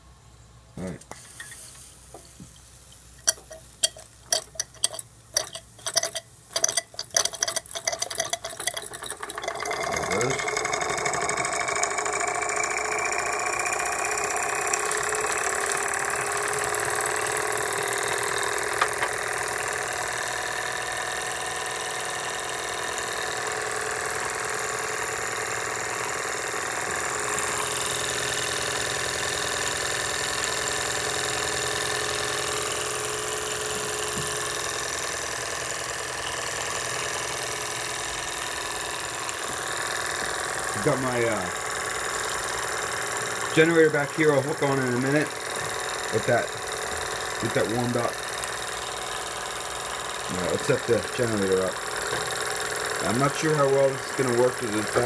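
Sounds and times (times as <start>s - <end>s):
steam hissing: 1.1s - 3.8s, 38.7s - 55.0s
toy steam engine exhaust beat: 1.1s - 55.0s.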